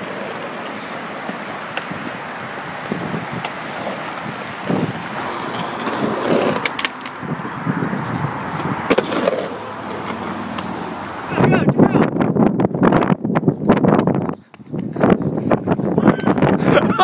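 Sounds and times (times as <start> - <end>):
skateboard clicks and knocks: 0.0 - 11.2
skateboard wheels rolling on asphalt: 0.0 - 17.0.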